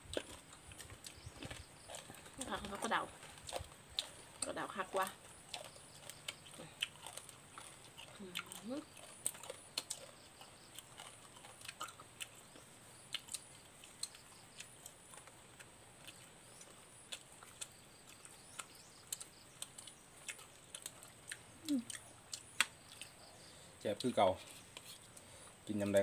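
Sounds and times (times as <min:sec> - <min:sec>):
person chewing: 0:00.0 - 0:25.3.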